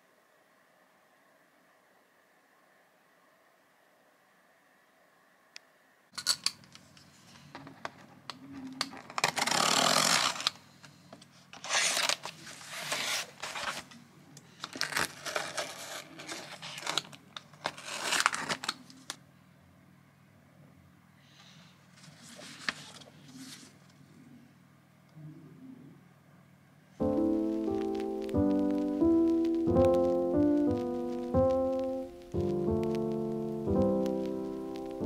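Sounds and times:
cardboard and paper tearing: 9.0 - 10.6, 11.6 - 13.9, 14.6 - 19.2
faint low hum: 10.5 - 35.0.

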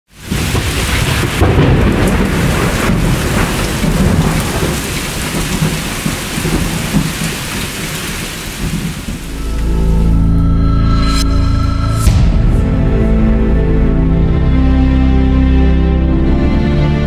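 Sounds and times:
heavy rain: 0.1 - 11.2
rumbling thunder: 0.2 - 10.2.

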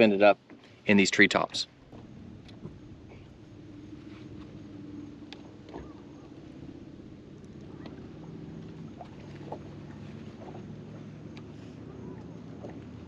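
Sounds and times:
faint clicks: 5.3 - 6.0, 11.3 - 11.6.

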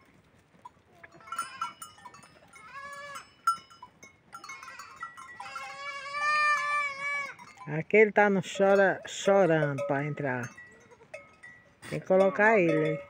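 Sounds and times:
goat kid bleating: 1.0 - 1.8, 2.5 - 3.3, 4.4 - 7.5.

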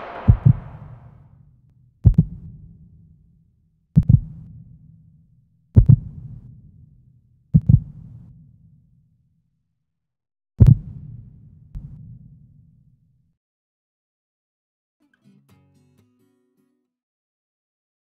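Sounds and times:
heartbeat double thumps: 0.0 - 1.0, 4.0 - 4.4, 5.8 - 6.2, 7.6 - 8.0, 10.6 - 11.1.

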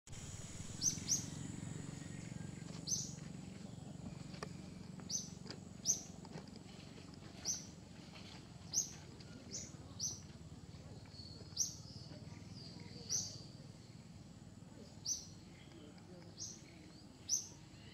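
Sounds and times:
faint high whine: 0.1 - 6.1
low hum: 0.1 - 17.9
bird chirping: 0.2 - 6.2, 8.7 - 14.1, 14.7 - 17.9.

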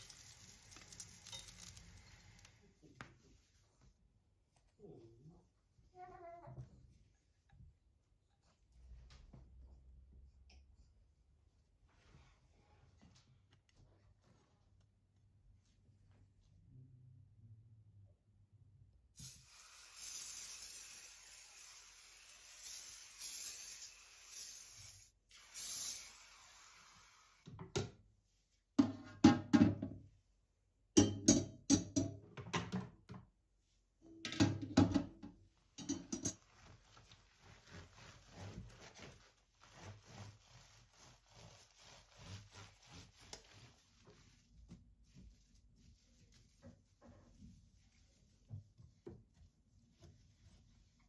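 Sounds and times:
metal parts clattering in sink: 0.1 - 1.8
hiss: 19.2 - 27.4
scrubbing hob: 35.9 - 51.0.

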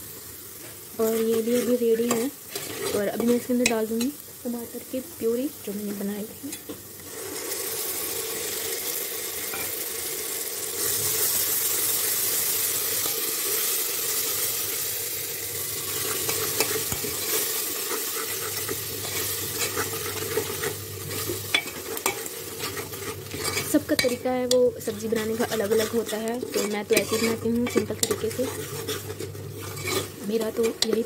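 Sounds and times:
sauce sizzling in a pot: 0.0 - 31.0
spoon scraping a pot: 1.0 - 4.2, 15.9 - 31.0.

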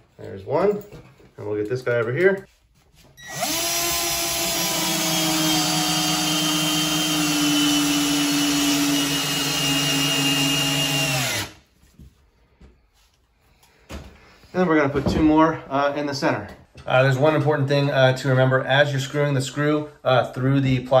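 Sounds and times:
cordless drill motor whine: 3.2 - 11.6.

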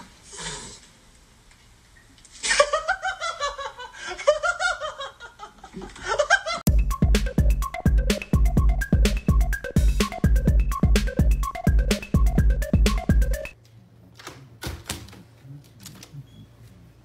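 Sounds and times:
person giggling: 2.4 - 6.6
electronic music with hard beat: 6.7 - 13.6.

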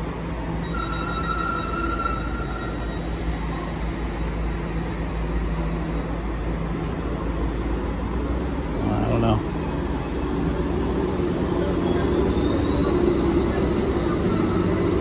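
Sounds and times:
train engine rumble and hum: 0.0 - 15.0.

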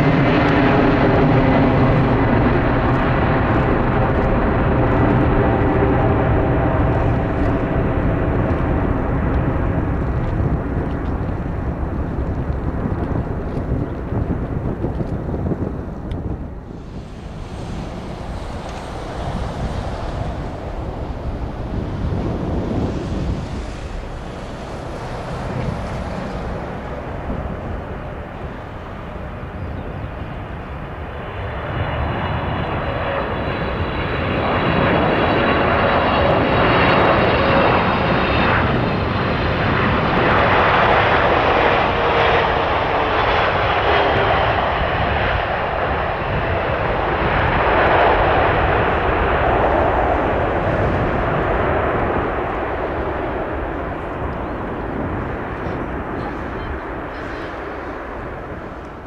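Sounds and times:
falling engine whine: 0.0 - 59.0
jet engines landing: 0.0 - 59.0.

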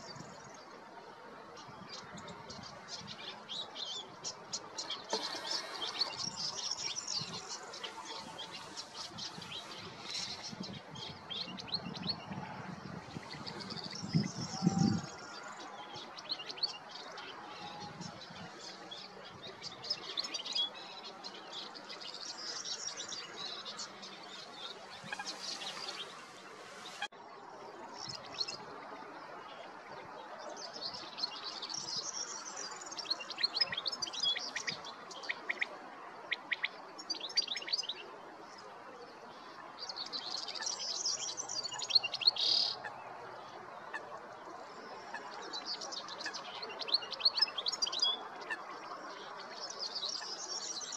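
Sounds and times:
goldfinch twittering and trilling: 1.9 - 12.4, 13.1 - 27.1
background hiss: 15.1 - 29.7.

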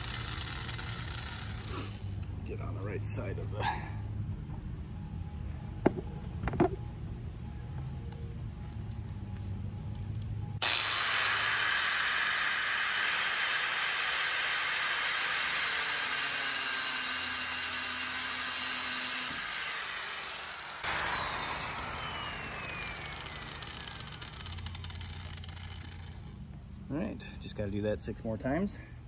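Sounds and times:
grinder winding down whine: 0.0 - 2.0, 10.6 - 26.4
angle grinder cutting steel wire: 0.0 - 2.3, 10.6 - 26.4.

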